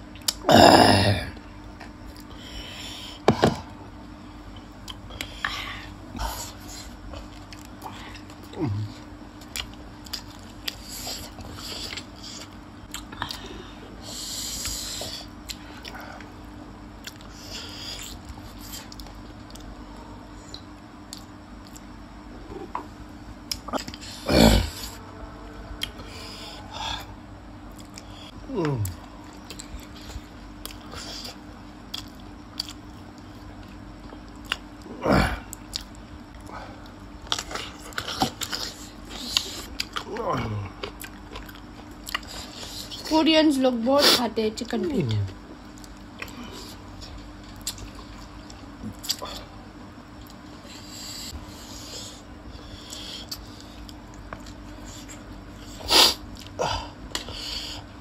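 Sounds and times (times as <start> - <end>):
wet chewing and lip smacks: 9.4 - 13.5, 28.8 - 34.8, 40.8 - 43.0, 45.6 - 49.4.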